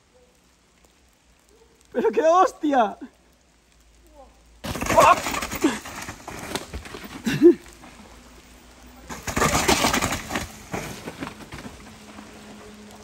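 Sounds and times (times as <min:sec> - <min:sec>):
bike tyres scraping on dirt: 0:04.6 - 0:13.0.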